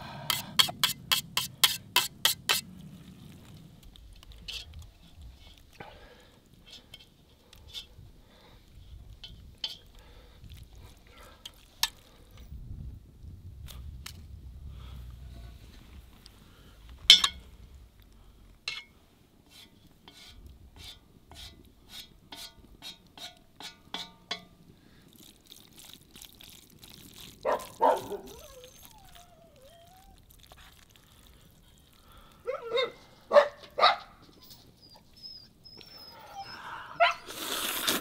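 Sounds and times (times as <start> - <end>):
dog yelping: 27.4 - 30.3, 32.4 - 37.3
dog whining: 27.5 - 30.5, 32.5 - 33.0, 34.3 - 37.3.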